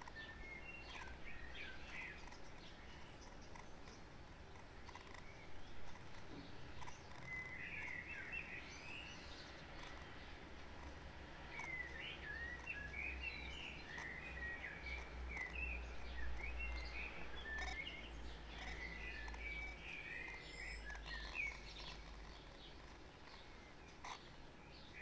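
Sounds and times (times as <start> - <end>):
birds chirping: 0.0 - 25.0.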